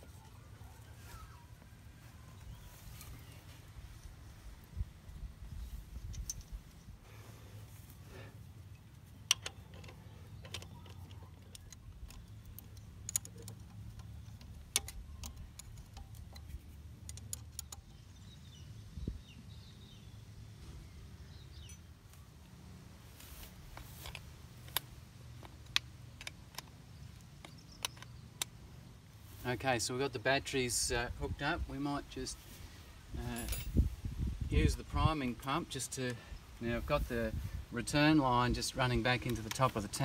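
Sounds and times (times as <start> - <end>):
metallic clicks of hand tools: 9.2 - 17.9, 23.8 - 28.6.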